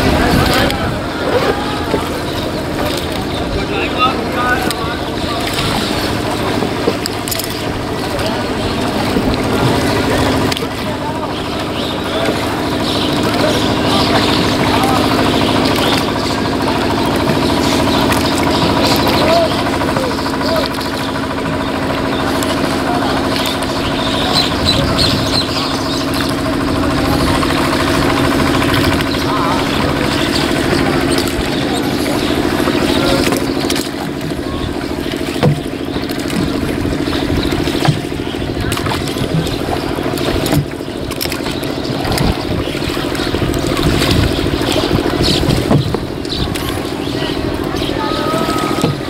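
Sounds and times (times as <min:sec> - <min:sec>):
oars stroking water: 0:00.0 - 0:49.0
small boat engine running: 0:00.0 - 0:49.0
steady low hum: 0:00.0 - 0:49.0
wooden oars knocking in pegs: 0:30.1 - 0:46.9.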